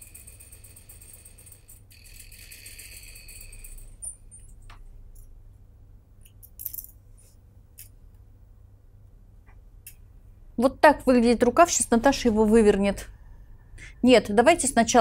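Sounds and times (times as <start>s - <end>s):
sewing machine whine: 0.0s - 4.1s.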